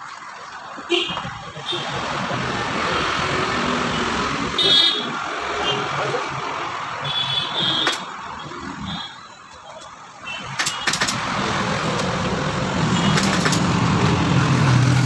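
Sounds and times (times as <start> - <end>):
vehicle engine hum: 0.6 - 15.0
sharp clicks: 10.6 - 11.2, 13.1 - 13.8.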